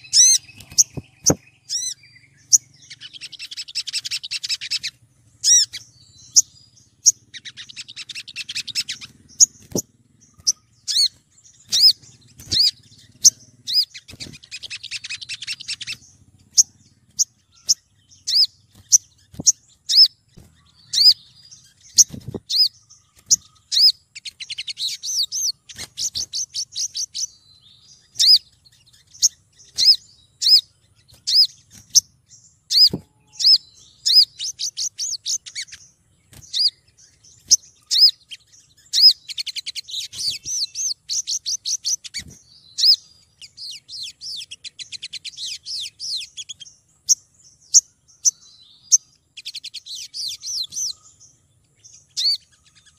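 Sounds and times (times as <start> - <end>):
bird chattering trill: 0.0 - 52.9.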